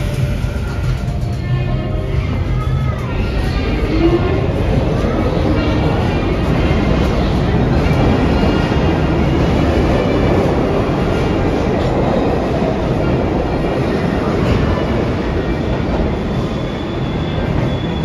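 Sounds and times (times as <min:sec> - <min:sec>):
subway train rumbling on rails: 0:00.0 - 0:18.0
high-pitched wheel squeal: 0:16.1 - 0:18.0.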